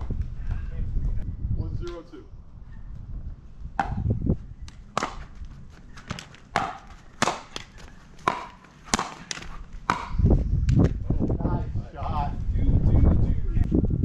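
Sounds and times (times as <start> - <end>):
pickleball popping off paddles: 4.7 - 5.3, 6.0 - 10.9.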